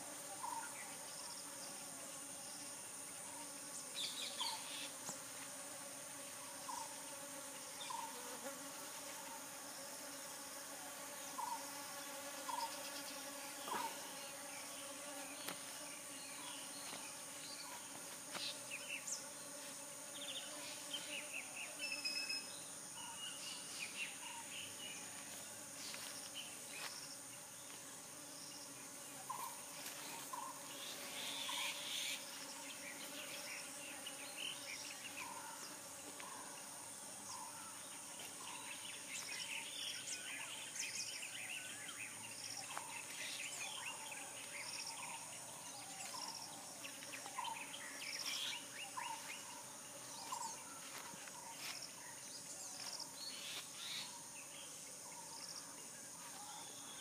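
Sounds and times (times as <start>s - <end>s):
high-pitched insect drone: 28.4s - 54.3s.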